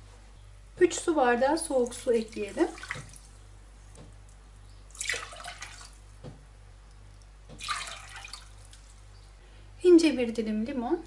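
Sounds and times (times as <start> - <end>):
water splashing into a steel pot: 1.8 - 3.3, 4.9 - 6.0, 7.6 - 8.9.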